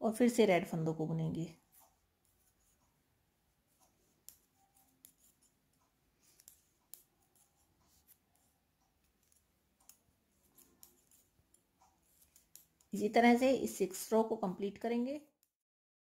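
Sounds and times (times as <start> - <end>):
plastic knitting needles ticking: 3.6 - 15.4.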